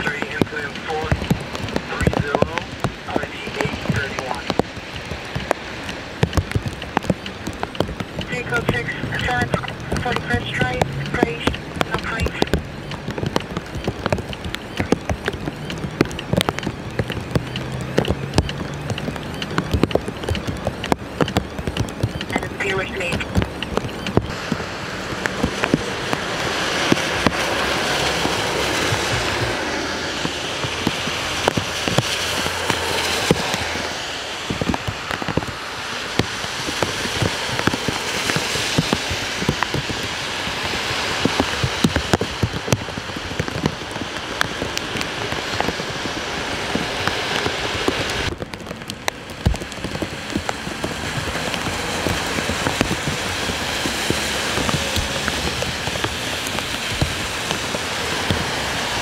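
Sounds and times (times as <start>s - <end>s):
rain on wet pavement: 0.0s - 59.0s
car tyres hissing on wet road: 24.2s - 59.0s.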